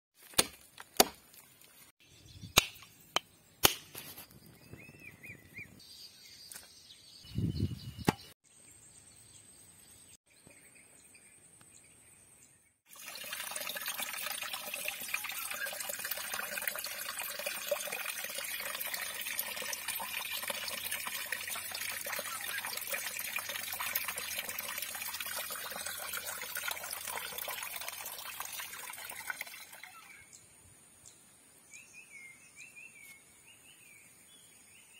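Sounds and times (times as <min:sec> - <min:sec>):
stream water flowing and splashing: 0:12.9 - 0:30.2.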